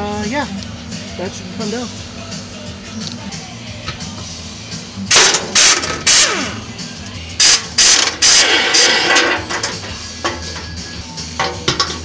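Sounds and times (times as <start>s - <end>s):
impact wrench bursts: 5.1s - 6.6s, 7.4s - 10.4s.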